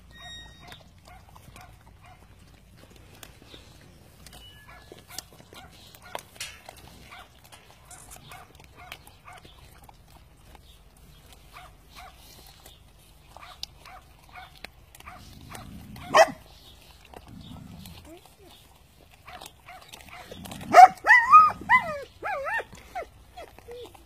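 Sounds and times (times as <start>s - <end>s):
puppy yelp: 0.0s - 2.2s, 19.3s - 24.0s
puppies chewing meat on bone: 0.0s - 24.0s.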